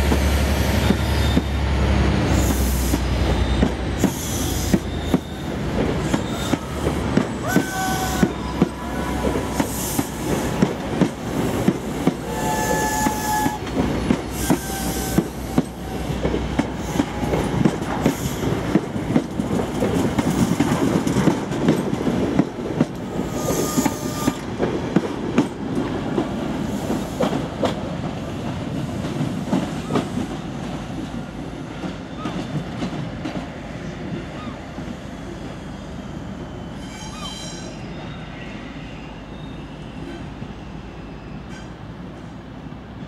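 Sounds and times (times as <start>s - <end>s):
high wheel squeal: 2.3s - 6.8s, 36.5s - 41.7s
train wheels clicking over rail joints: 2.4s - 33.5s.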